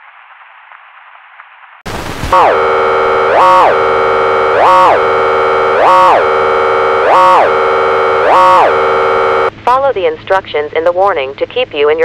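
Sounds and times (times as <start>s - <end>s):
swooping emergency alert tone: 2.3s - 9.5s.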